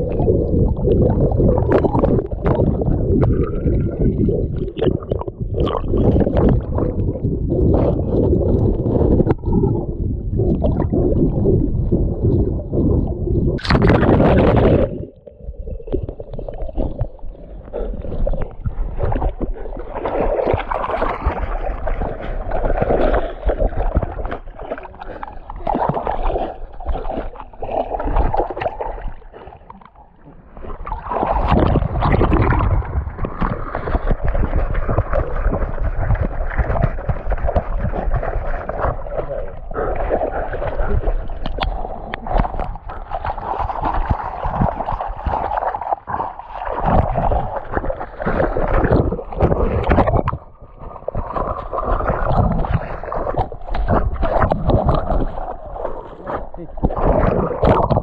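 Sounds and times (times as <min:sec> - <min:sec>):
river water sloshing and splashing: 0:17.7 - 0:58.0.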